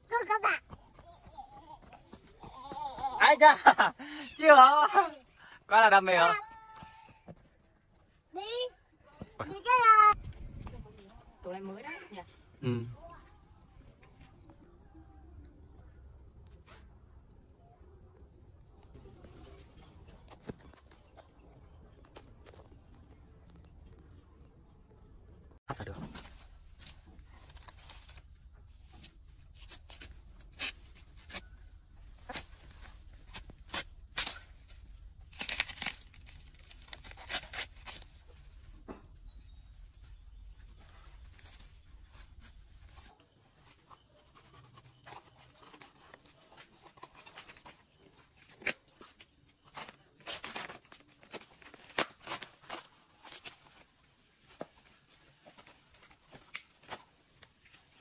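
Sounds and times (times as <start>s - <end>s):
high insect drone: 25.7s - 58.0s
footsteps on dry leaves and twigs: 26.0s - 38.4s.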